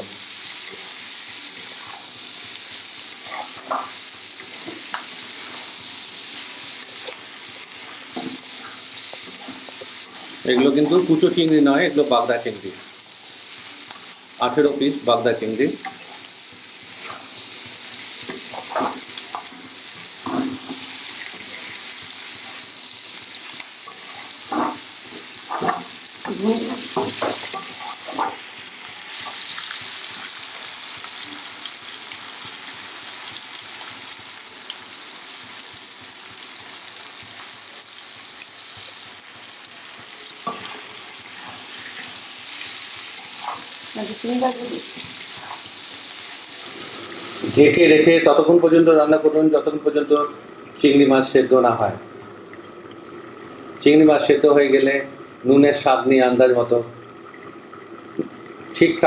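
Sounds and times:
food sizzling in hot oil: 0.0 - 59.0
steel spatula scraping a pan: 40.4 - 45.7.

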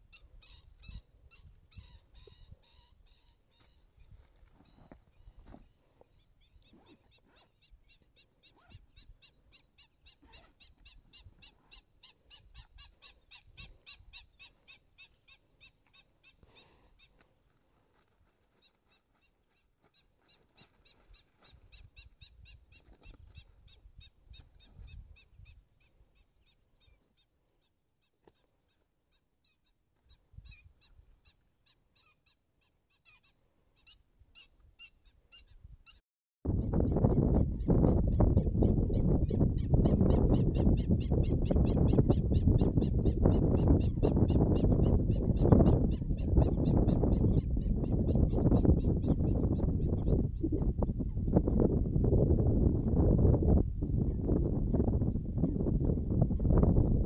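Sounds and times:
high-pitched animal calls: 6.2 - 17.2
wind rumble: 36.5 - 57.0.

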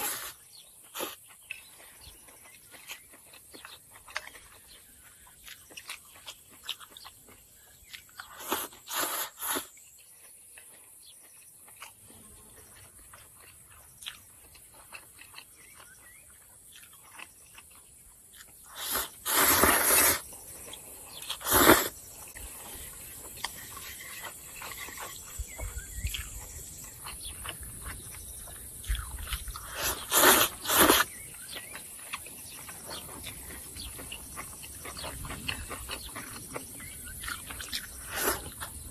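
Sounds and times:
person slurping noodles: 0.0 - 0.4, 8.4 - 9.8, 18.7 - 20.3, 21.2 - 22.0, 29.6 - 31.2, 38.0 - 38.6
quiet chewing: 0.0 - 38.9.

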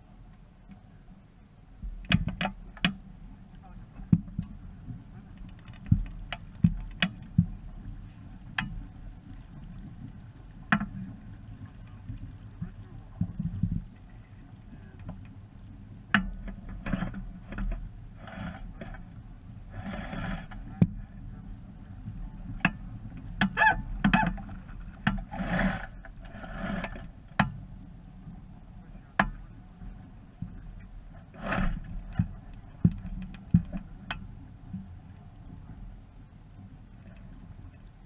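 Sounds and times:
low wind rumble on microphone: 0.0 - 38.0
sharp knocks from boat: 1.8 - 3.0, 3.9 - 7.7, 10.6 - 14.2, 16.1 - 19.1, 19.8 - 21.1, 22.4 - 26.2
water slapping against hull: 1.8 - 35.8.

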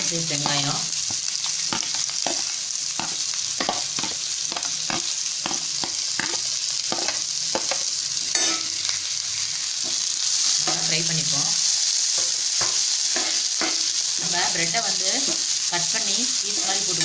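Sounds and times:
onions sizzling in hot oil: 0.0 - 17.0
steel spatula scraping and clacking: 1.7 - 8.8.

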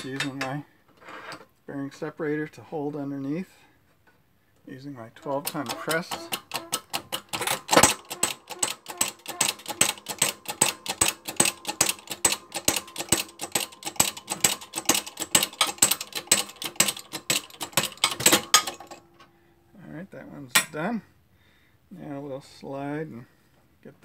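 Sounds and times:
hydraulic hand pump clicking: 5.2 - 19.0.

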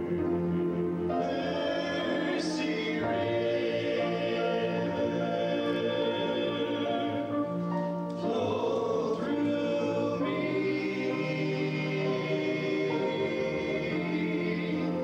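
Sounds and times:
male vocal group singing harmony: 1.2 - 15.0.

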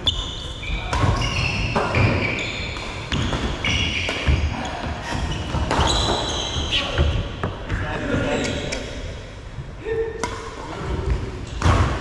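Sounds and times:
shoes squeaking on court floor: 0.0 - 7.4.

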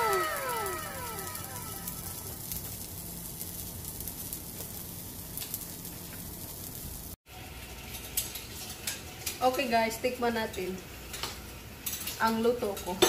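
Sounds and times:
whistling tones gliding down: 0.0 - 2.5
crackling hiss: 0.0 - 7.2.

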